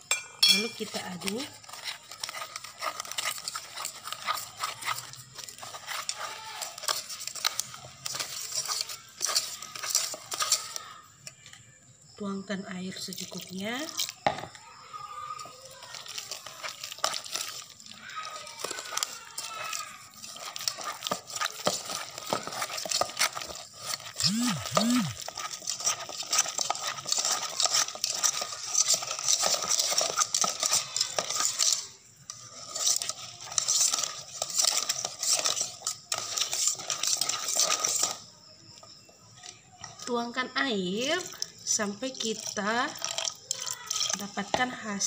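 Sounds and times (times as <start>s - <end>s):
whisk scraping against bowl: 0.1s - 11.1s, 15.3s - 38.9s, 41.1s - 44.8s.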